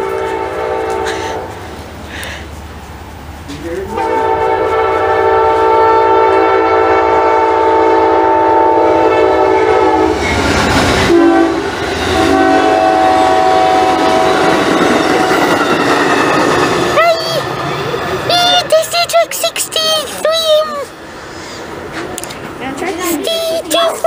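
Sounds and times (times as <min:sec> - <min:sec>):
locomotive horn blasts: 0:00.0 - 0:01.6, 0:03.9 - 0:10.2, 0:11.0 - 0:15.4
train rumbling past: 0:00.0 - 0:24.0.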